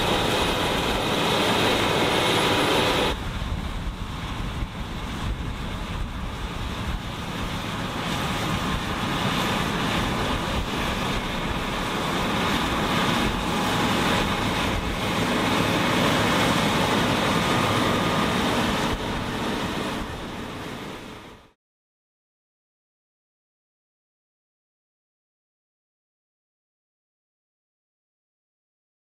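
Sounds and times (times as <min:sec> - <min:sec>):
combine harvester cutting wheat: 0:00.0 - 0:21.6.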